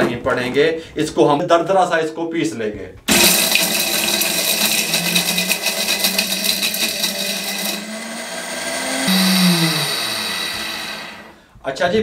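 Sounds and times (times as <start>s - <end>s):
mixer grinder motor hum: 3.1s - 11.4s.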